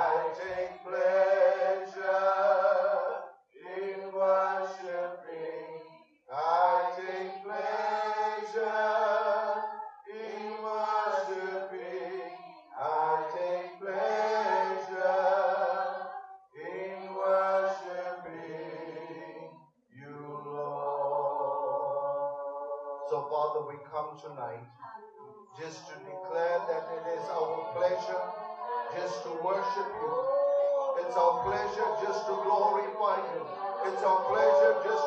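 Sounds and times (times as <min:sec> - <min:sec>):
person singing into microphone: 0:24.8 - 0:35.0.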